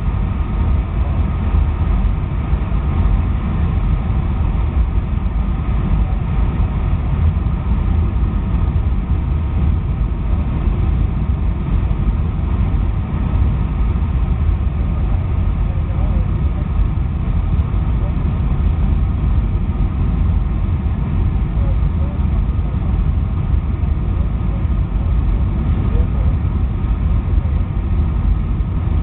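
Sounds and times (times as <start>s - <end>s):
aircraft cabin engine noise: 0.0s - 29.0s.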